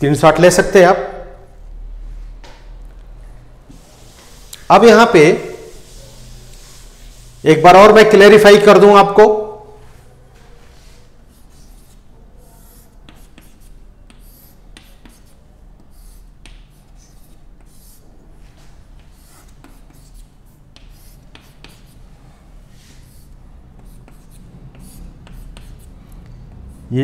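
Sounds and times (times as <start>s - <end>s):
chalk scratching on chalkboard: 3.7s - 8.0s, 9.9s - 27.0s
chalk taps: 10.8s - 22.0s, 22.8s - 26.9s.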